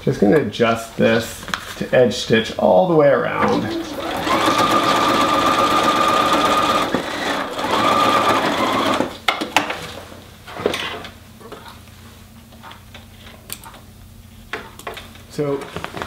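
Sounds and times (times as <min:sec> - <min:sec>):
sewing machine running: 0:03.5 - 0:09.2.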